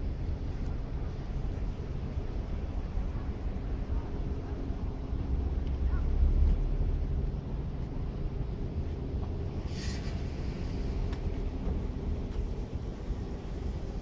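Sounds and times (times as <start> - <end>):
wind rumble on microphone: 0.0 - 14.0
brief hiss: 9.6 - 11.2.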